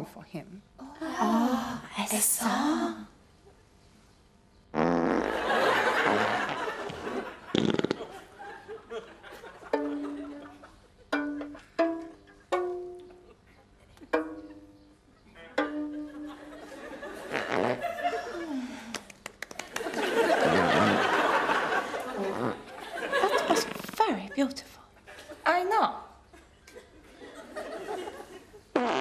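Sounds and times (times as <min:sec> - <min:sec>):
comic fart sound effects: 0:04.7 - 0:08.2, 0:17.2 - 0:18.0, 0:20.4 - 0:21.0, 0:22.1 - 0:22.7, 0:23.3 - 0:24.2, 0:28.7 - 0:29.0
plucked string tune: 0:09.6 - 0:13.4, 0:14.0 - 0:16.8.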